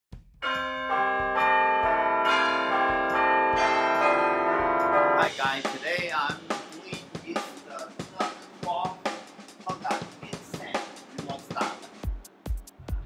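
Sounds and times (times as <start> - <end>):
bell-like chimes music: 0.4 - 5.4.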